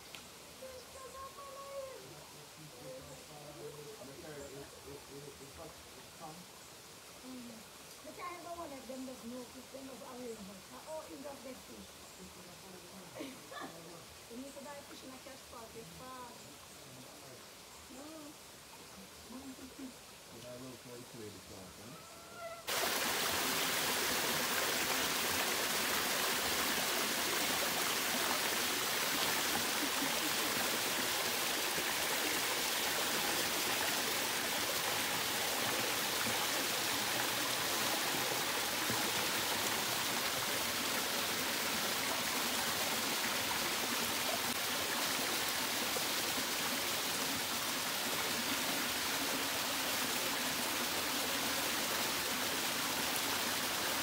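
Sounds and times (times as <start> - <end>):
waterfall cascading over rock: 22.7 - 54.0.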